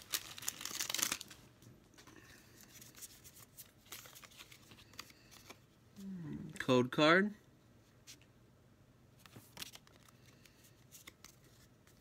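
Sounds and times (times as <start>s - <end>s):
foil wrapper tearing and crinkling: 0.0s - 1.4s
rustles and clicks of cards: 0.0s - 5.8s, 9.2s - 12.0s.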